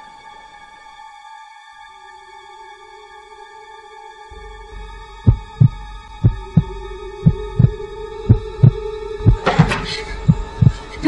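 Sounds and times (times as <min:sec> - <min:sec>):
sustained drone of held tones: 0:04.3 - 0:11.0
heartbeat double thump: 0:05.3 - 0:10.8.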